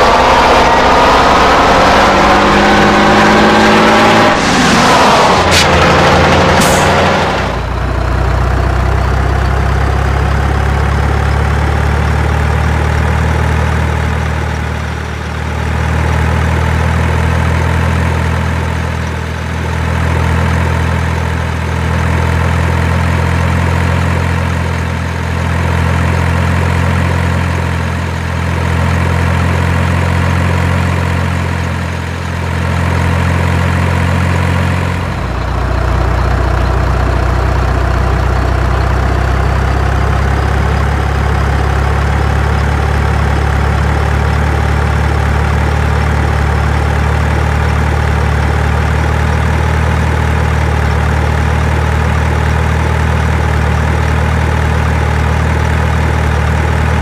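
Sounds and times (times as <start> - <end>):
deep rumble: 0.0 - 16.7
heavy engine idling: 5.4 - 57.0.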